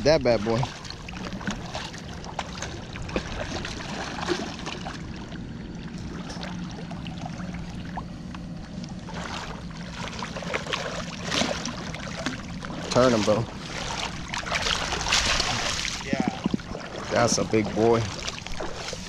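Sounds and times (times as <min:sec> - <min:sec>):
water lapping at bank: 0:00.0 - 0:19.0
fish splashing at water surface: 0:00.4 - 0:08.1, 0:08.9 - 0:19.0.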